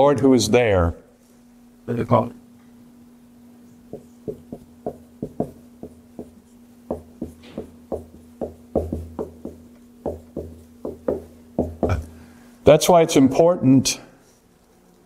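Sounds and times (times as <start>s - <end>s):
steady low hum: 0.0s - 15.0s
marker tapping on whiteboard: 3.9s - 12.0s.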